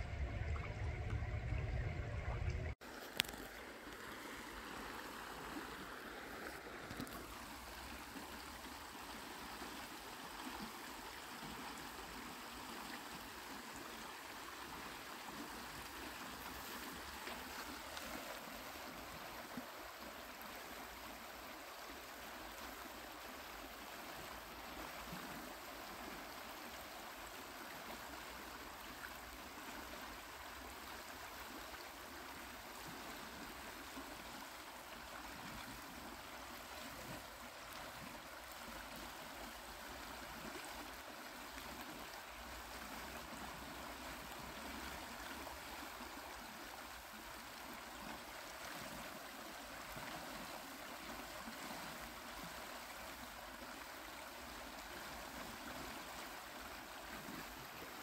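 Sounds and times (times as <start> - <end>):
river water rippling over stones: 0.0 - 58.0.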